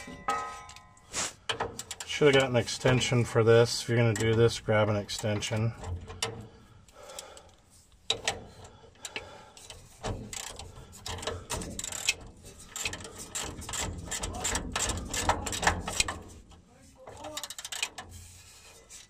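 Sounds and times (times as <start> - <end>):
ratcheting driver clicking: 1.4 - 3.2, 4.0 - 18.4
metal tool clicks on bolt: 1.5 - 3.0, 8.1 - 8.4.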